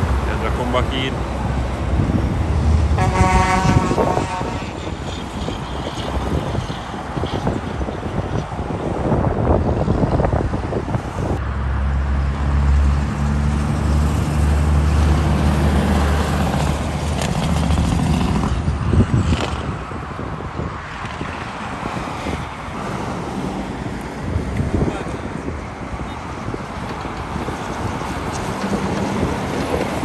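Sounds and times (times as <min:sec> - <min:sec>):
diesel truck engine passing: 0:00.0 - 0:07.6, 0:08.8 - 0:19.8, 0:21.7 - 0:30.0
whoosh of passing traffic: 0:00.0 - 0:30.0.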